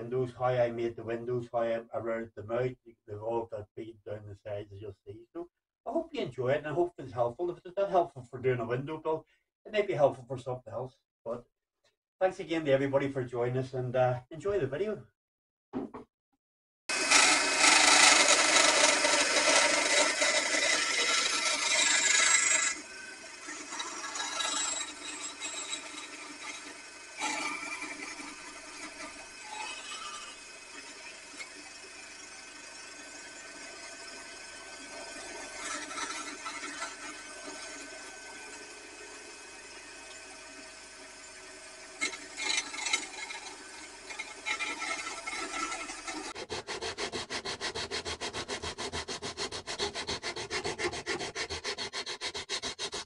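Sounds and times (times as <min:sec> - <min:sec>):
bandsaw cutting: 0:16.9 - 0:53.0.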